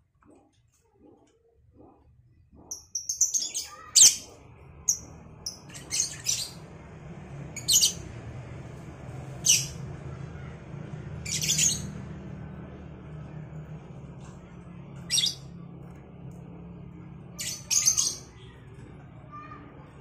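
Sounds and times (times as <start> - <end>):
lovebirds chirping and squawking: 2.6 - 6.6, 7.6 - 8.2, 9.3 - 9.8, 11.2 - 12.0, 15.0 - 15.5, 17.3 - 18.6.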